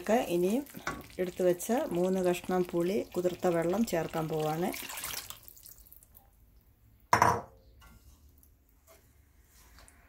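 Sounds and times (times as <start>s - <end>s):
glass bowl set down: 7.1s - 7.5s.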